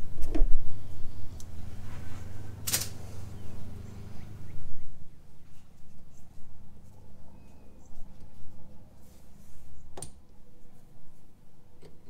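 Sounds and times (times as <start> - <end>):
steady low hum: 0.0 - 12.0
rubber hose rustling: 1.6 - 3.4.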